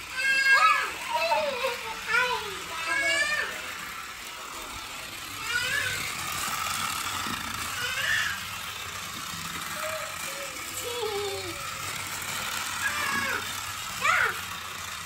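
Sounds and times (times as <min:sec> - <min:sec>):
toy car motor whirring: 0:00.0 - 0:15.0
child's high voice: 0:00.1 - 0:03.8, 0:05.4 - 0:06.3, 0:07.7 - 0:08.6, 0:09.7 - 0:11.8, 0:12.8 - 0:14.5.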